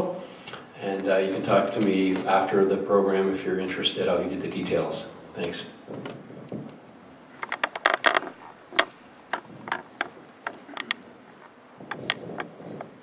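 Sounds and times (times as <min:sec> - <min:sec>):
sharp irregular clicks and knocks: 0:07.4 - 0:13.0.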